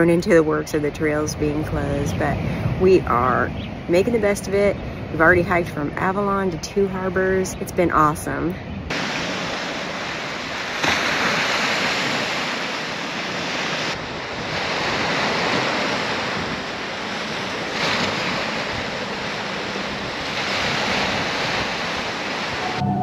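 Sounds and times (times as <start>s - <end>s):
waves breaking on rocks and pebbles: 8.9s - 22.7s.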